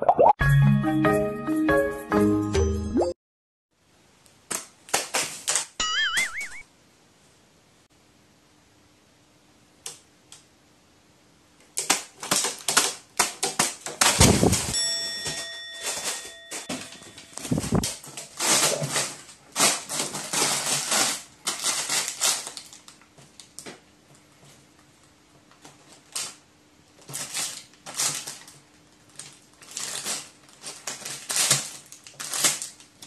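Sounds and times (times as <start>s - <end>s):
paper crinkling: 4.5s - 5.8s, 11.7s - 23.7s, 24.4s - 33.0s
heavy thumps: 14.2s - 14.8s.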